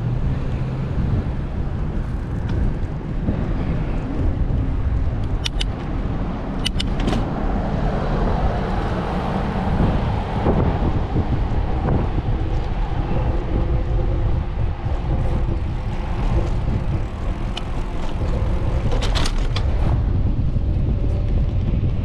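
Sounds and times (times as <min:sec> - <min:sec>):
car traffic passing: 0:00.0 - 0:21.9
wind on microphone: 0:00.0 - 0:22.0
sharp clicks: 0:05.2 - 0:05.8, 0:06.6 - 0:07.2.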